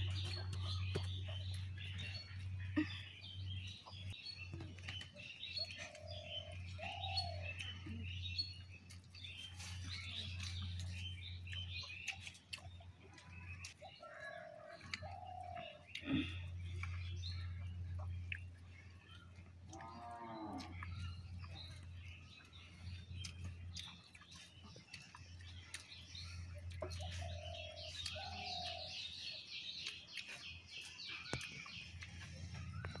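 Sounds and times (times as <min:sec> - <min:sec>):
birds chirping: 0:00.0 - 0:33.0
farm animal call: 0:19.7 - 0:21.7.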